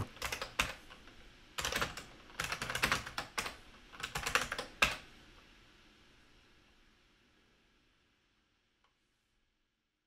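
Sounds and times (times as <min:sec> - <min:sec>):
keyboard typing: 0:00.0 - 0:00.9, 0:01.6 - 0:05.0.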